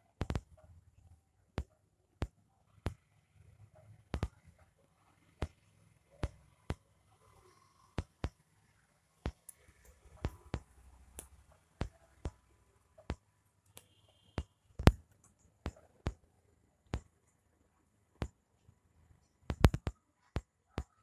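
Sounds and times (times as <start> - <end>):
sharp clicks and knocks: 19.5 - 20.9.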